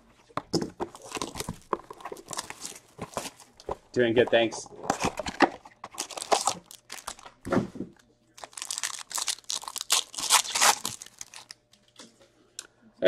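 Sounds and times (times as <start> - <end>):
foil wrapper crinkling: 1.0 - 3.6, 5.0 - 7.3, 8.4 - 11.6.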